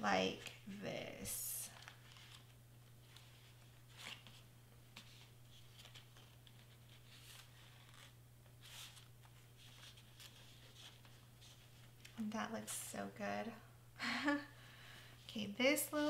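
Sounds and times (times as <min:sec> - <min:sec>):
low steady hum: 0:00.0 - 0:16.0
cardstock rustling: 0:01.7 - 0:12.2.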